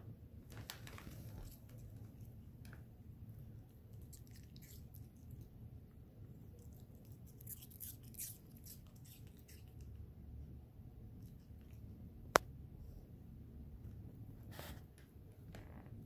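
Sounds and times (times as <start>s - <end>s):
puppy crunching apple: 3.7s - 5.5s, 6.3s - 10.0s.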